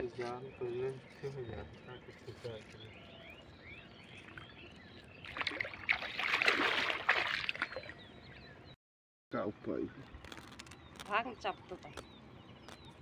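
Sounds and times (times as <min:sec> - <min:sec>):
faint bird chirps: 0:00.0 - 0:06.2
water splashing: 0:04.2 - 0:08.1.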